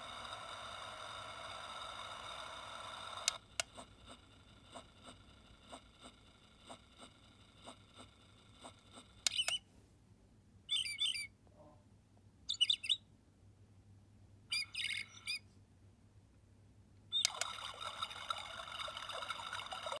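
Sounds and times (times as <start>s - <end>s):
recorded high bird chirping: 9.2s - 9.7s, 10.6s - 11.4s, 12.4s - 13.1s, 14.5s - 15.5s, 17.1s - 17.6s.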